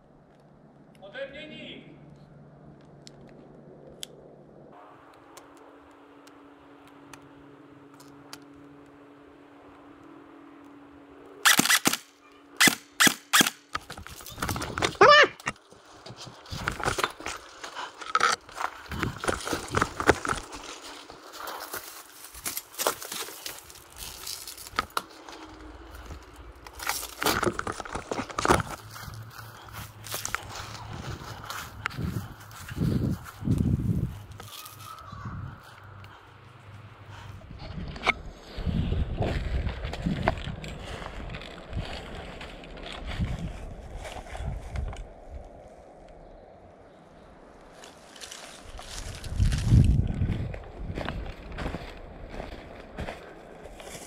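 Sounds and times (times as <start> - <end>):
steady low hum: 0.0 - 54.0
footsteps crunching on dry leaves: 15.6 - 36.0, 47.7 - 54.0.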